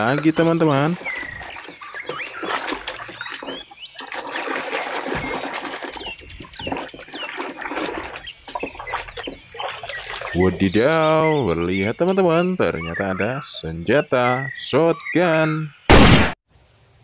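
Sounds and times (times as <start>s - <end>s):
scrubbing knocks: 0.0s - 10.7s
water splashing and sloshing: 0.0s - 10.9s
birds chirping: 0.0s - 16.3s.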